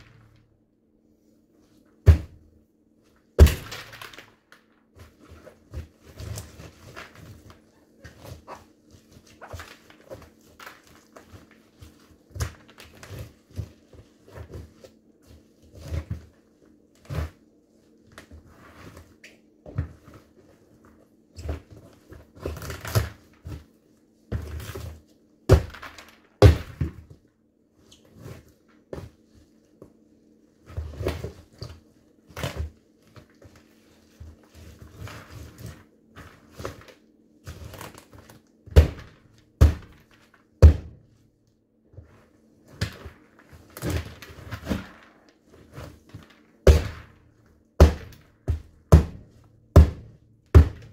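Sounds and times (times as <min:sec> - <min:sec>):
sneakers stomping on pumpkin: 0:02.0 - 0:02.4, 0:40.6 - 0:41.0, 0:47.8 - 0:50.9.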